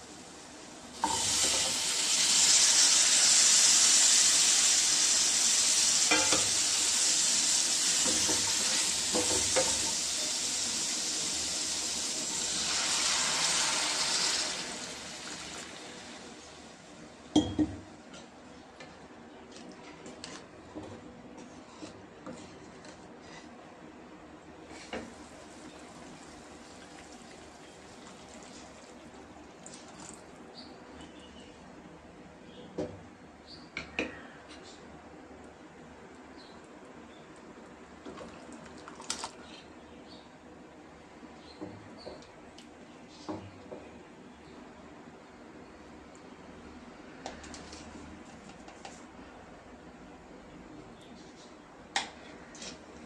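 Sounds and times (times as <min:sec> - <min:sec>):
vegetables sizzling in hot oil: 0:00.1 - 0:16.8.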